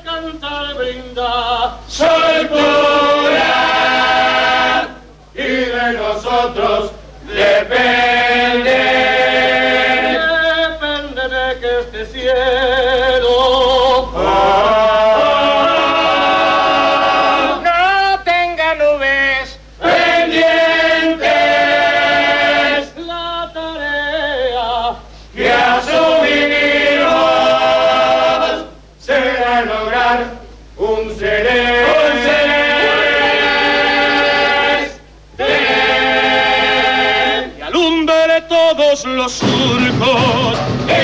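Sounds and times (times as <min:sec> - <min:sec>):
chorus singing in harmony: 0:00.8 - 0:10.4, 0:14.1 - 0:17.8, 0:19.8 - 0:23.0, 0:25.3 - 0:37.7, 0:39.4 - 0:41.0.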